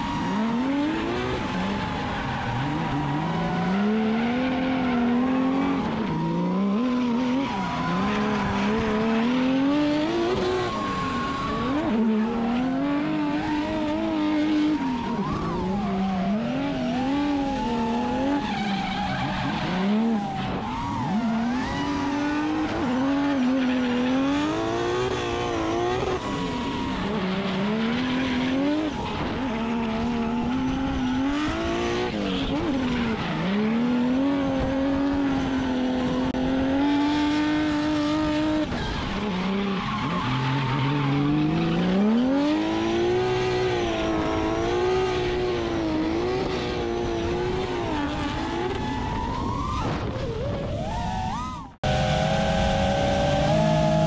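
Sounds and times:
car engine at high revs: 0.0s - 54.0s
tyres squealing and skidding: 0.0s - 54.0s.

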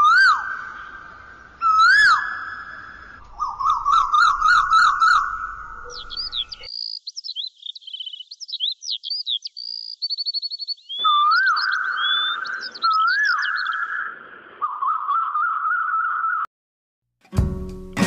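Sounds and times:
bird chirps and trills: 0.0s - 16.4s
bird whistling call: 1.6s - 6.7s, 7.3s - 16.4s.

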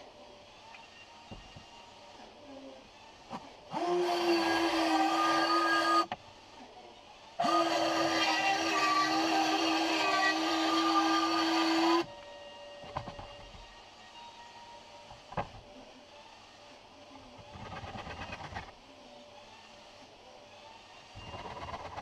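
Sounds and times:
circular saw cutting plywood: 3.7s - 6.2s, 7.4s - 12.1s, 17.2s - 18.8s, 20.5s - 22.0s.

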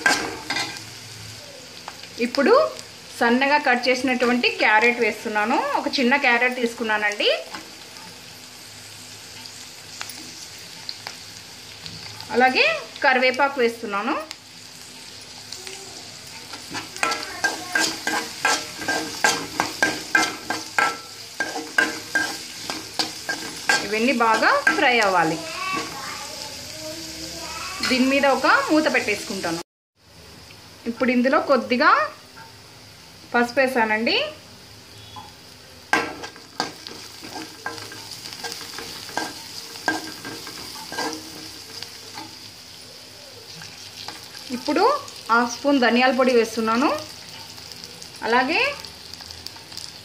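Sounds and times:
vegetables sizzling in oil: 0.0s - 50.0s
metal spoon scraping pan: 16.5s - 26.0s, 36.0s - 42.3s.

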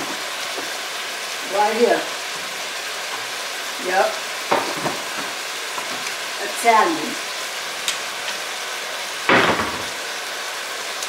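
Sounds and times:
meat sizzling in a pot: 0.0s - 11.0s
loud knock: 9.3s - 10.0s.

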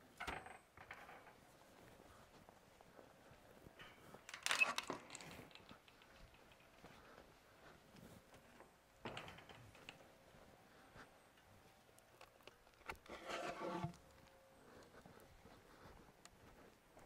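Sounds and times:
squeaky scrape of post: 13.0s - 14.1s.

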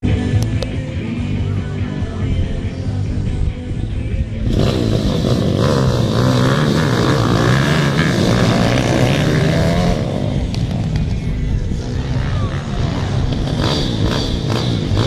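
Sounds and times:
dirt bikes revving: 4.3s - 15.0s.

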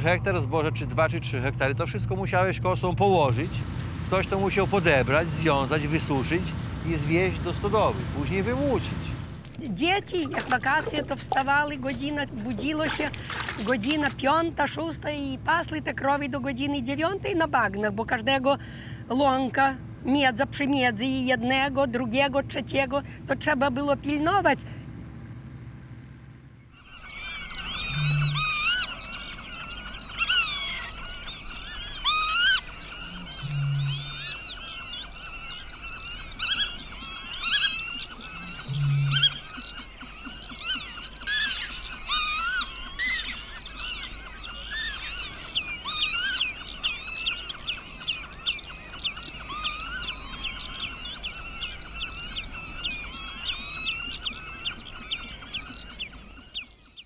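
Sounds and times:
marsh birds calling: 4.2s - 15.2s, 26.6s - 57.0s
deep short hoots: 27.8s - 28.6s, 33.1s - 34.2s.

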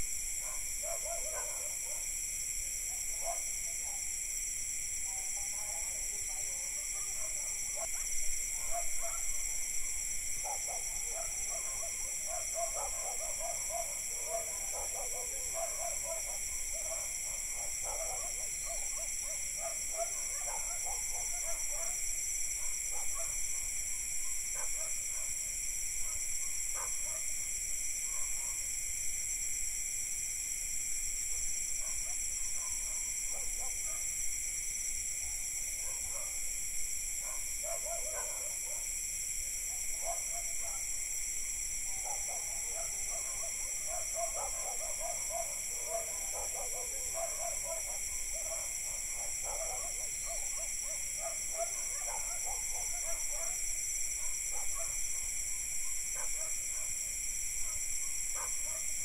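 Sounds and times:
crickets and cicadas droning: 0.0s - 59.0s
distant dogs barking: 0.4s - 2.1s, 3.0s - 4.1s, 5.3s - 22.0s, 35.8s - 36.4s, 37.2s - 38.9s, 39.7s - 40.9s, 41.9s - 57.0s, 57.6s - 58.9s.

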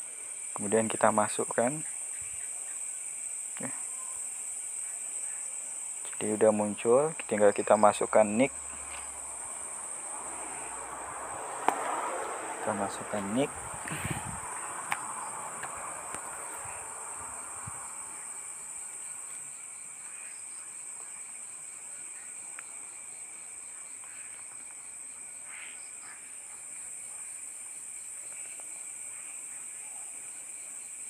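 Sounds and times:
crickets chirping: 0.0s - 31.0s
faint ticks: 22.5s - 22.8s.

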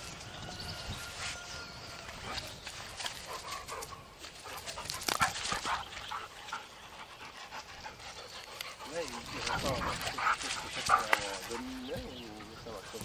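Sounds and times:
dogs vocalizing while playing: 3.0s - 13.0s.

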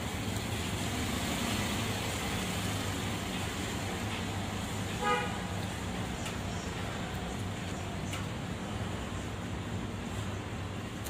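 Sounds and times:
road traffic rumble: 0.0s - 11.0s
vehicle horn toot: 5.0s - 5.4s.

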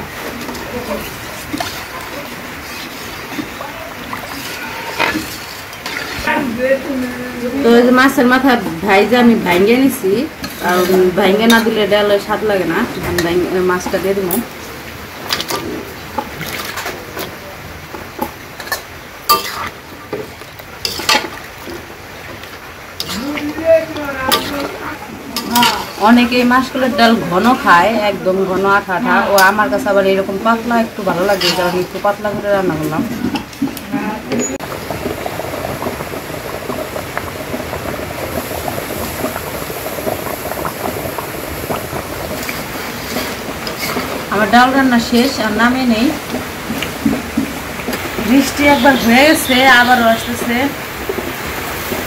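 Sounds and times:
pot of dal bubbling: 0.0s - 52.0s
metal spoon scraping a bowl: 31.2s - 32.0s.

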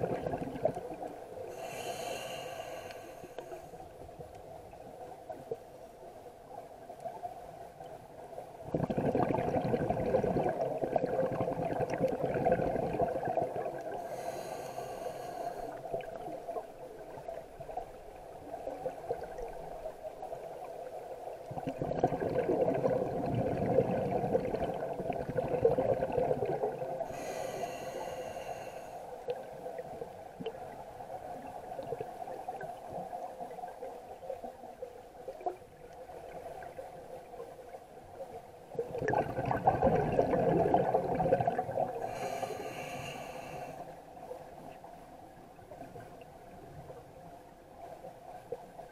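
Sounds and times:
bubbling underwater exhalations: 0.0s - 1.1s, 8.6s - 14.2s, 21.5s - 27.4s, 38.8s - 42.4s
scuba regulator hissing inhalation: 1.5s - 3.8s, 14.0s - 15.8s, 27.0s - 29.1s, 42.0s - 43.9s.

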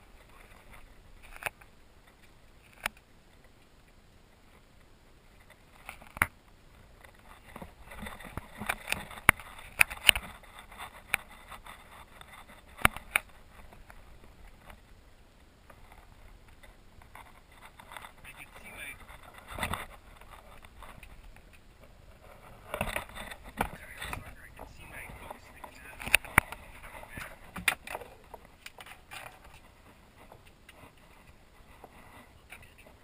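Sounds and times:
faint steady hiss: 0.0s - 33.0s
sharp clicks and knocks: 22.6s - 32.7s.

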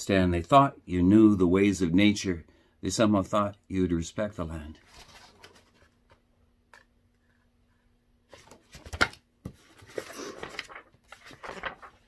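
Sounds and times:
faint steady hum: 0.0s - 12.0s
book pages rustling: 4.8s - 6.2s, 8.3s - 12.0s.

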